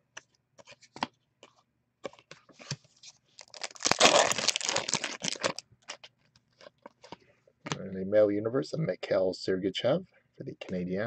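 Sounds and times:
foil wrapper crinkling and tearing: 3.4s - 6.8s.

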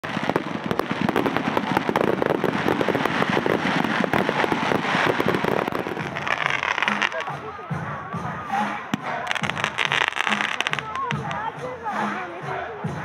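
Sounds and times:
fireworks crackling pops: 0.0s - 7.7s, 8.9s - 11.5s.

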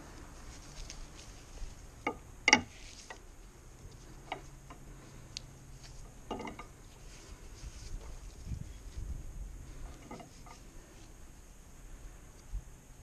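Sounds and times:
metal buckle clicking: 6.2s - 6.8s.

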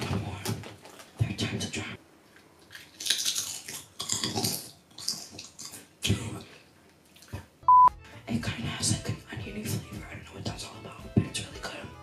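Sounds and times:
crunching chip being chewed: 2.4s - 5.9s.

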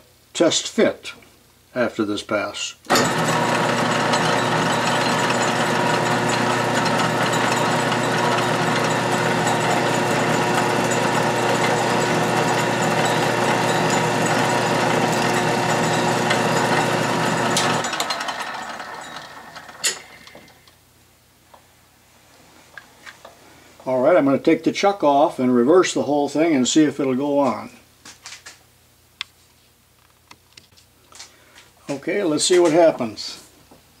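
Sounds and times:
lathe motor and gears running: 2.9s - 20.5s.

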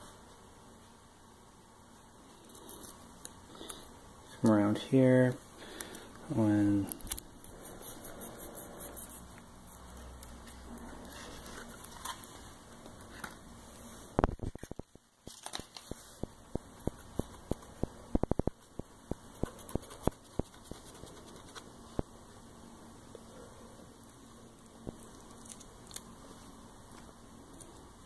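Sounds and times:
transfer tape crackling: 5.6s - 22.1s.

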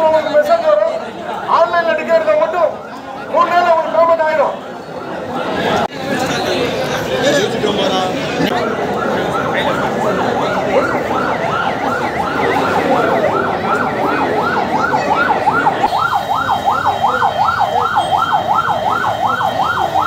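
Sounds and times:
crowd noise: 0.0s - 20.0s
electronic siren yelping: 8.4s - 20.0s.

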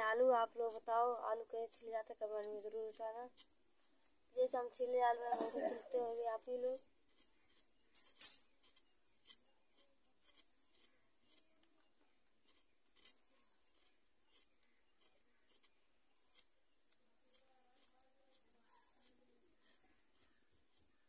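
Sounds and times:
knife scraping potatoes: 6.0s - 11.7s, 13.7s - 21.0s.

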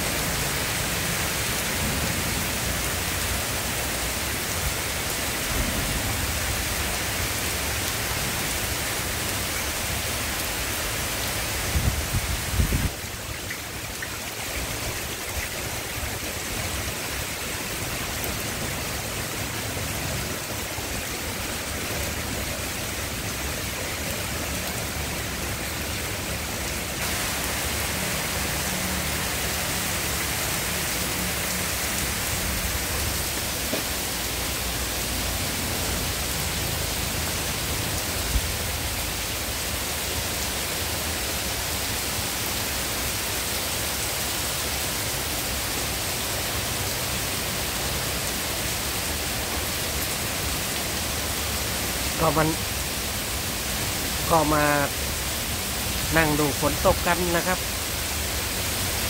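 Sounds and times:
heavy rain pouring on trees: 0.0s - 59.0s.

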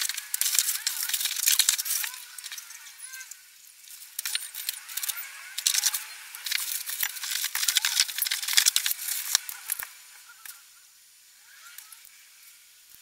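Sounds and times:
plastic packaging crinkling and tearing: 0.0s - 9.9s
small hardware clicks: 0.0s - 10.6s, 11.6s - 12.2s.

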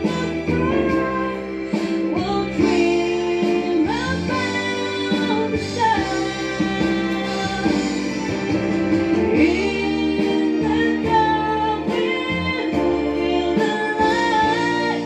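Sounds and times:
instrumental backing music: 0.0s - 15.0s
woman singing into a microphone: 0.0s - 15.0s.

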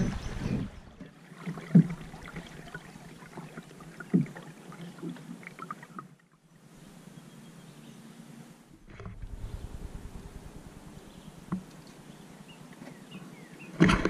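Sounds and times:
paddle strokes with low thud: 0.0s - 5.2s, 8.7s - 12.1s, 13.7s - 14.0s.

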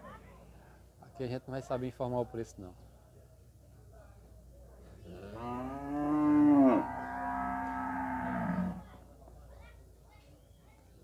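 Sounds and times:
cow mooing: 5.1s - 8.8s.

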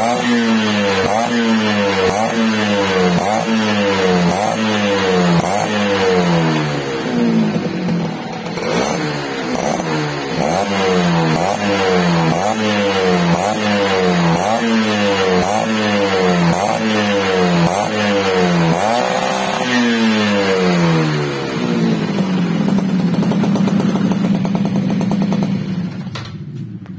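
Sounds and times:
two-stroke engine revving: 0.0s - 26.8s
engine idling: 1.8s - 14.5s, 20.6s - 26.9s.

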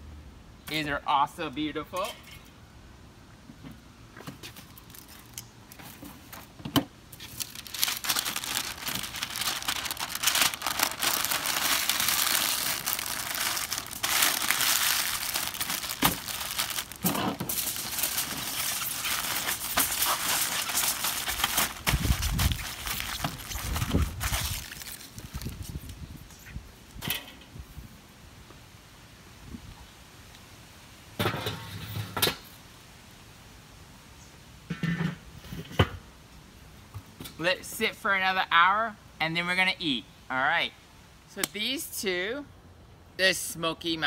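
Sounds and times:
paper and foil crinkling: 4.5s - 6.4s, 7.2s - 26.0s.

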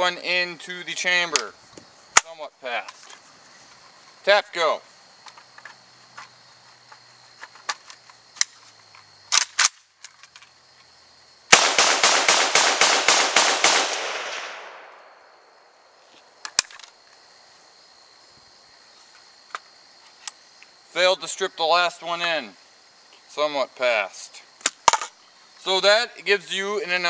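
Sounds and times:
metallic clacks of rifle: 6.9s - 10.5s, 16.4s - 17.0s
rifle shots echoing: 11.5s - 15.4s.

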